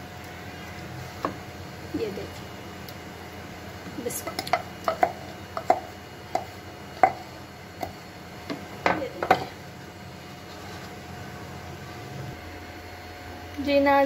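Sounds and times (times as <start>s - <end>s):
wooden pestle knocking on mortar: 4.2s - 9.5s.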